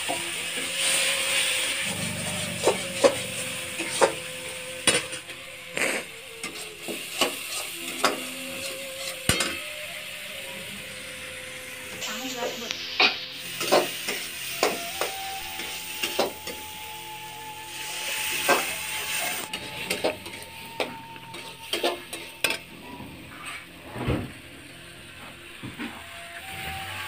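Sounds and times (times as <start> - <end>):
food sizzling in oil: 0.0 - 23.8
metal spatula scraping steel pan: 0.6 - 9.7, 13.0 - 16.6, 18.0 - 22.6.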